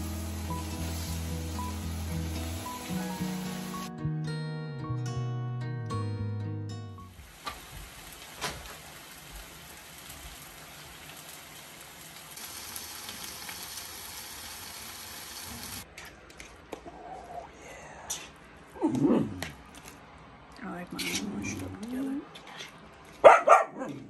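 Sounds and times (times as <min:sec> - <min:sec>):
food sizzling in a skillet: 0:00.0 - 0:03.9, 0:07.2 - 0:15.8.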